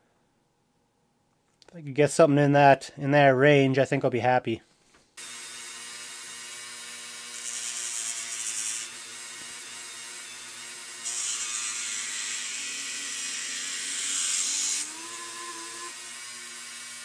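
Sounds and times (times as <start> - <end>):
rotary tool motor whining: 5.2 - 17.0.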